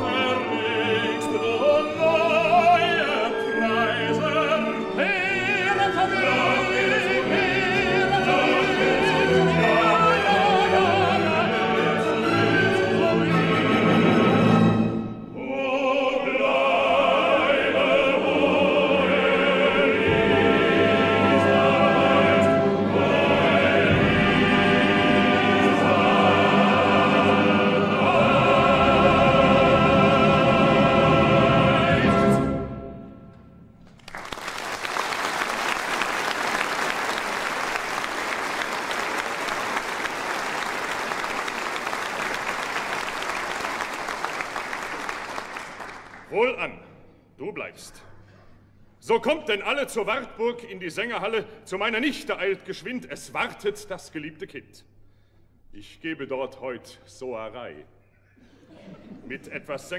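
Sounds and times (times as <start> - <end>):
chorus singing with orchestra: 0.0 - 33.6
audience applauding: 33.8 - 46.3.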